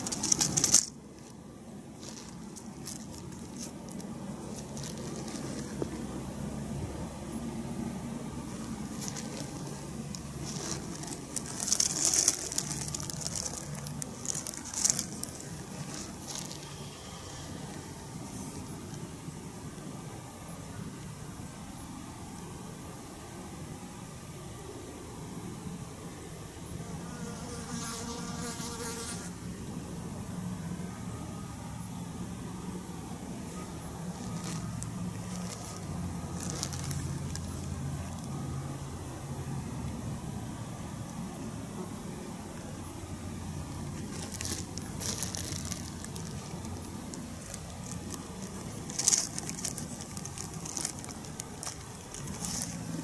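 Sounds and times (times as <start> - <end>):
crackling rustles: 0.0 - 19.1, 33.2 - 38.8, 42.6 - 53.0
low outdoor rumble: 0.0 - 27.4, 29.3 - 53.0
steady low hum: 0.0 - 53.0
flying insect buzzing: 26.8 - 29.4.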